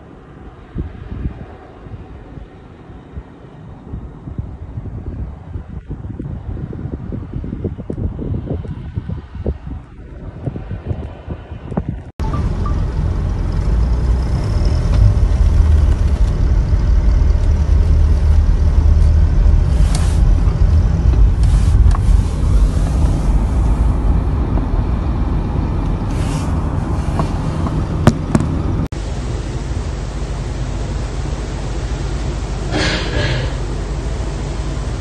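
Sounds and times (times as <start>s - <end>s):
vehicles passing close by: 6.2s - 35.0s
tyre and engine rumble inside car: 12.2s - 35.0s.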